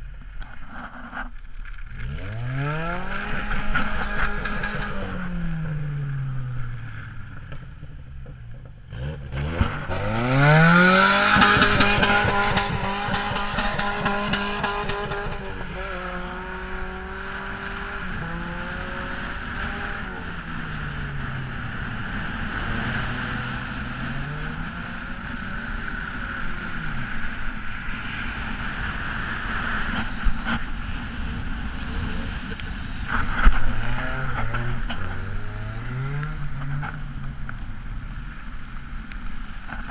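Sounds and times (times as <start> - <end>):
car engine revving hard: 2.0 - 5.5, 8.9 - 21.4.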